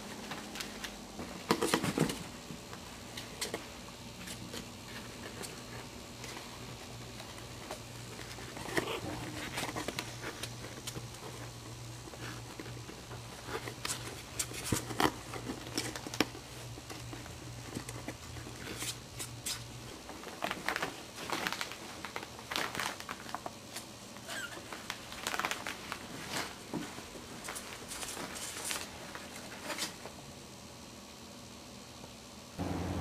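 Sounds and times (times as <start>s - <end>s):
puppies scuffling: 0.0s - 23.4s.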